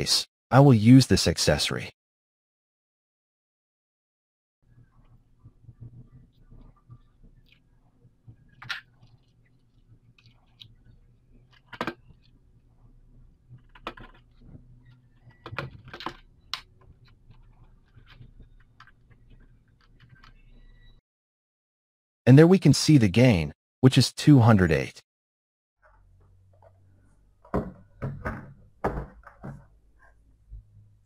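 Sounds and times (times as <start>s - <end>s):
faint low hum: 4.6s - 21.0s.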